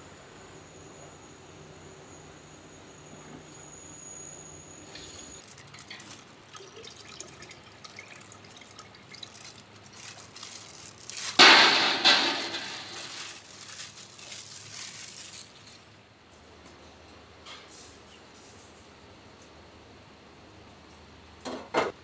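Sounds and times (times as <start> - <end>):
liquid gushing into a pot: 5.0 - 15.4
liquid splashing and dripping: 5.4 - 15.3.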